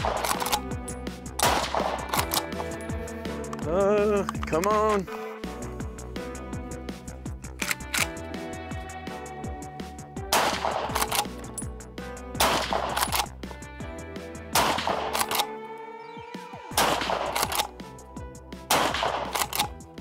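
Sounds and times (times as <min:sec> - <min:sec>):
loud rifle shots: 0:00.0 - 0:00.6, 0:01.4 - 0:02.5, 0:10.3 - 0:11.3, 0:12.4 - 0:13.3, 0:14.6 - 0:15.5, 0:16.8 - 0:17.7, 0:18.7 - 0:19.7
background music: 0:00.0 - 0:20.0.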